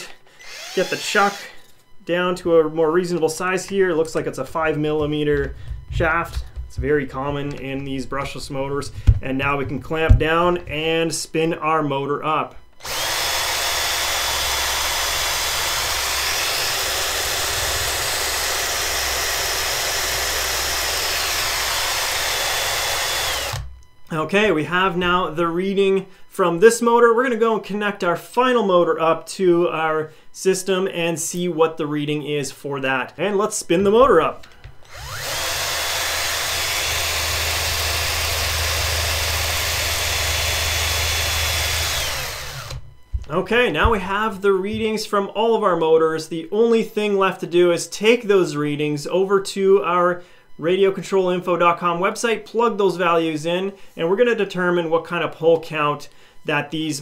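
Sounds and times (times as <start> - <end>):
cordless drill running: 0.2 - 1.8, 5.0 - 7.6, 12.8 - 23.7, 34.6 - 43.4.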